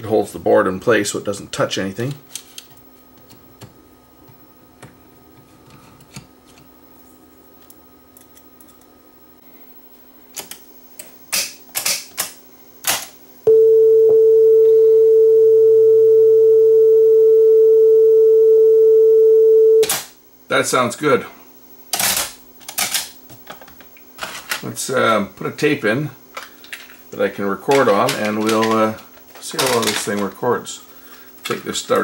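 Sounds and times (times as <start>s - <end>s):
sine test tone: 13.4s - 19.9s
faint low hum: 13.4s - 21.5s.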